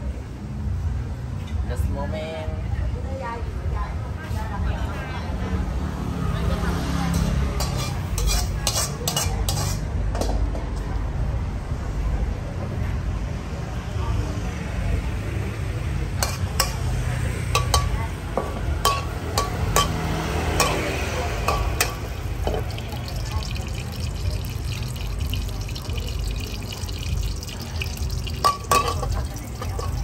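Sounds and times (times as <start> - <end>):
liquid sizzling in wok: 7.1 - 9.9, 16.2 - 30.0
metal spatula clinking on wok: 7.2 - 10.4, 16.2 - 16.9, 17.5 - 18.0, 18.8 - 26.3, 27.0 - 30.0
gas burner roar: 16.2 - 30.0.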